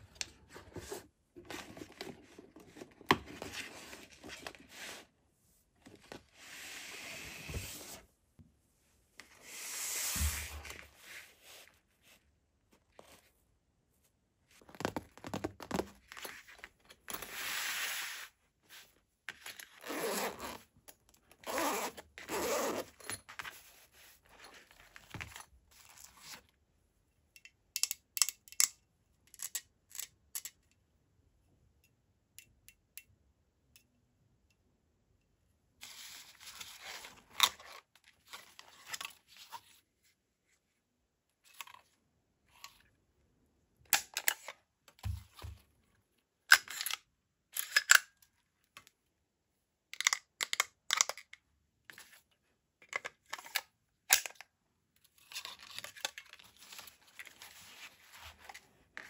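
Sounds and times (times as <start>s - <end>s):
zipper pulled open: 19.8s - 20.7s, 21.4s - 23.2s.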